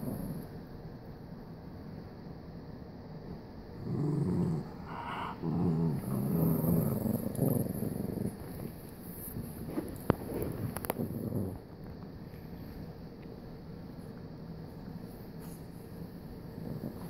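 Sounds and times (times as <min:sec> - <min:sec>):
dog growling: 0:00.0 - 0:00.5, 0:03.8 - 0:09.5, 0:10.3 - 0:11.8, 0:16.6 - 0:17.0.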